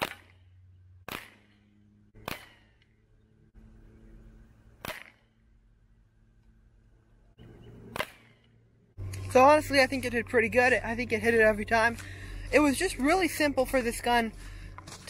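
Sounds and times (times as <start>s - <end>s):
air rifle shots: 0.0s - 2.8s, 4.8s - 5.4s, 7.9s - 8.5s.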